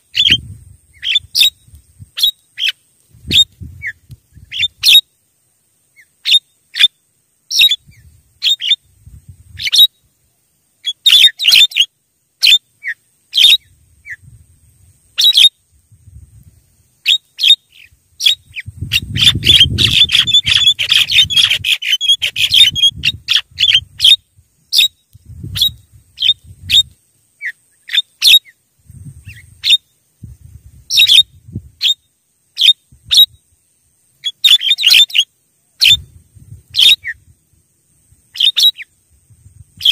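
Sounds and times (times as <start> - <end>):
birds calling and chattering: 0.0 - 5.0, 7.5 - 8.8, 10.8 - 14.2, 17.0 - 28.6, 30.9 - 32.0, 34.2 - 36.1, 36.7 - 37.2, 38.3 - 38.9.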